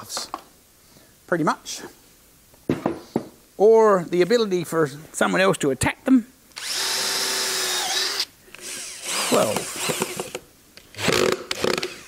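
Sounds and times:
cordless drill driving screw: 0:06.6 - 0:12.0.

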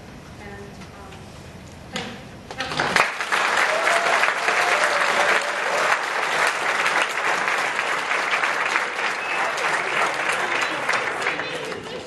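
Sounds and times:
audience applauding: 0:02.6 - 0:12.0.

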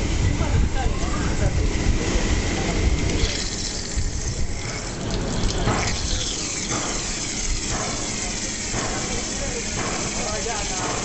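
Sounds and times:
water gushing and splashing: 0:03.0 - 0:11.0.

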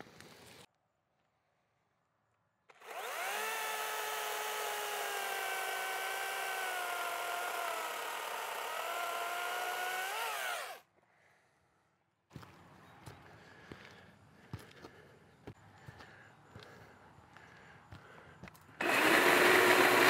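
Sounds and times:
chainsaw cutting wood: 0:02.7 - 0:10.9, 0:18.8 - 0:20.0.

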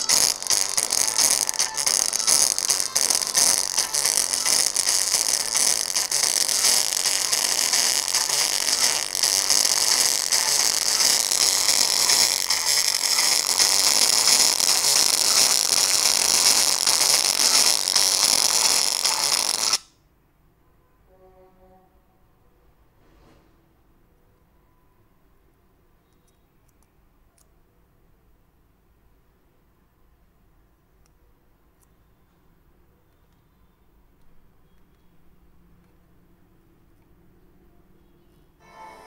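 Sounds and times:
harsh distorted speaker noise: 0:00.0 - 0:19.8.

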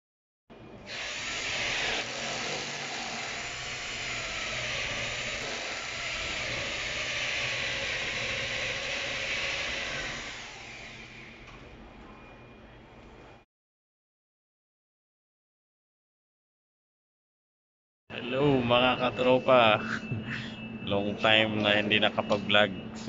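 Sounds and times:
electric drill with hole saw: 0:00.9 - 0:11.4.

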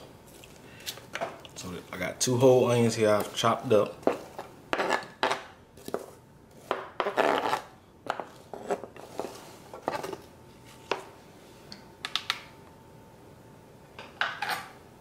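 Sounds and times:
knife scraping cutting board: 0:04.0 - 0:10.2.

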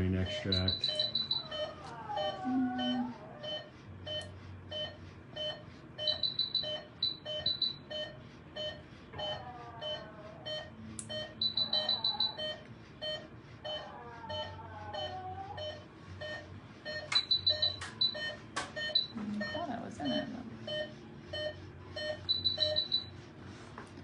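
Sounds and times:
monitor beeping steadily: 0:00.0 - 0:24.0
fast high-pitched beeps: 0:00.2 - 0:01.7, 0:06.0 - 0:08.2, 0:11.2 - 0:12.6, 0:15.7 - 0:23.1.

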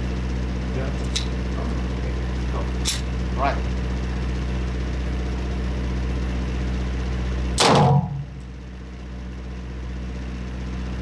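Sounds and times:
steady low hum: 0:00.0 - 0:11.0
gunshot with ringing tail: 0:07.6 - 0:08.3.

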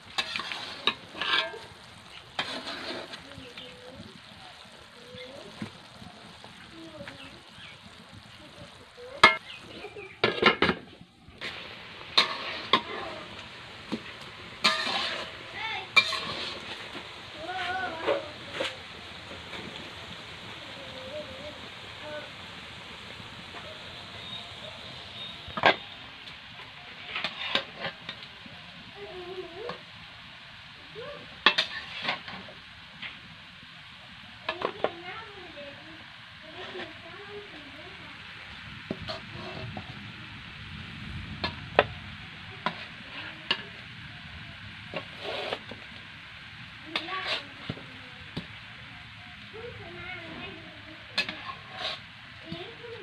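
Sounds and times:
steady low hiss: 0:00.0 - 0:53.0
syrup bubbling: 0:00.0 - 0:53.0
metal spatula clattering on wok: 0:14.6 - 0:15.2, 0:16.0 - 0:16.4.

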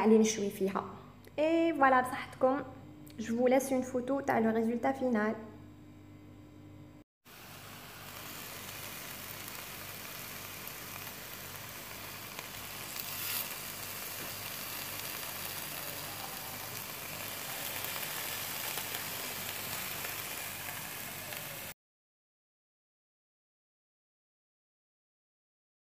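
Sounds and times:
skewers sizzling on grill pan: 0:07.3 - 0:21.8.

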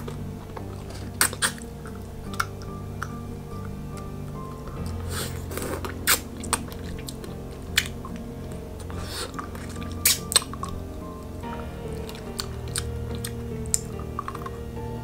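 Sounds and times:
wet lollipop sucking sounds: 0:00.0 - 0:03.2, 0:04.7 - 0:10.8
soft background music: 0:00.0 - 0:15.0
candy clicking in mouth: 0:04.8 - 0:10.9.

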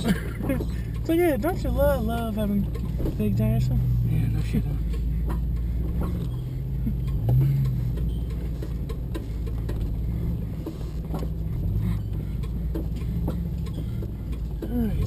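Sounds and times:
body and suspension rattles: 0:00.0 - 0:15.0
car engine running at low speed: 0:00.0 - 0:15.0.

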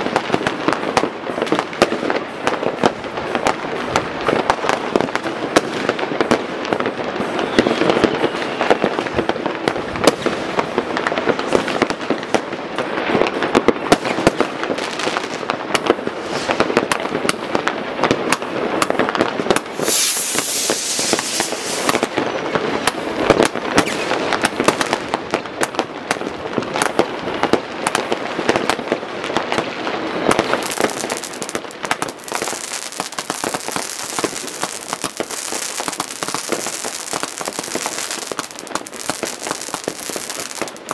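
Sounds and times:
fireworks banging and crackling: 0:00.0 - 0:40.9
fireworks hissing: 0:16.1 - 0:16.8, 0:19.5 - 0:22.2, 0:30.0 - 0:40.9.

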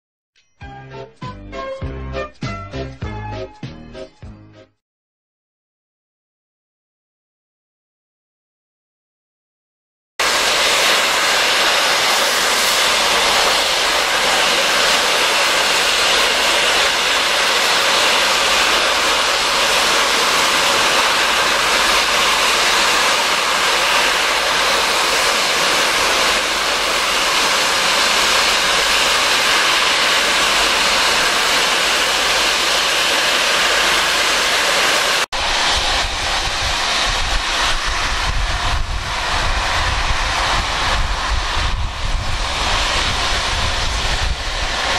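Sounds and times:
steam locomotive blowing off steam: 0:10.2 - 0:44.9.

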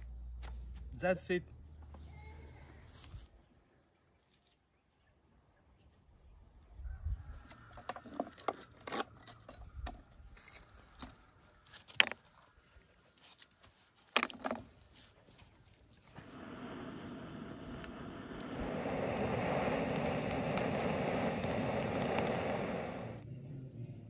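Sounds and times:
steady rushing noise: 0:16.2 - 0:23.2.

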